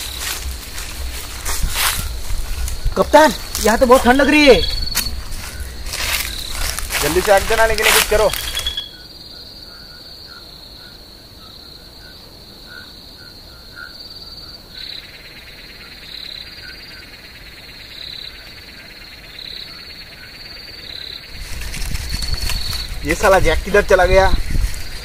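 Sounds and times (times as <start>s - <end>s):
buzzing insect chirps: 0.0s - 9.1s, 19.0s - 25.0s
frogs calling: 0.0s - 25.0s
high insect trill: 0.0s - 25.0s.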